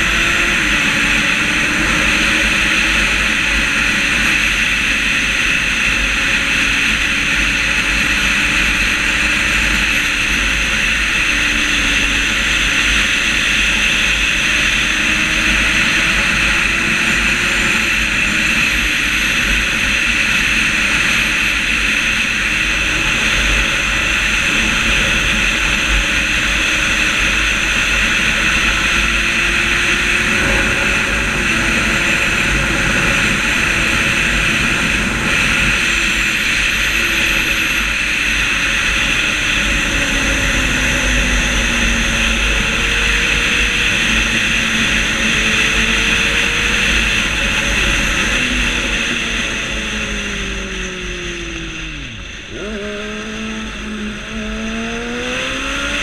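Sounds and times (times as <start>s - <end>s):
motorcycle engine drone: 0.0s - 56.0s
wind rushing over microphone: 0.0s - 56.0s.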